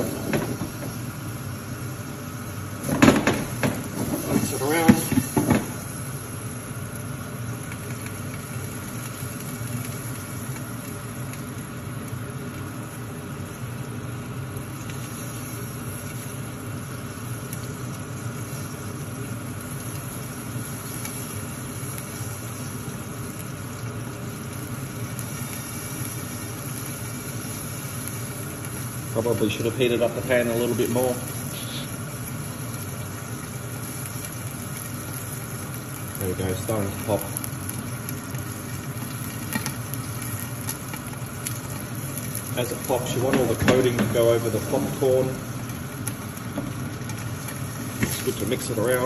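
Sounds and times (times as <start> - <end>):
oil sizzling in a pan: 0.0 - 49.0.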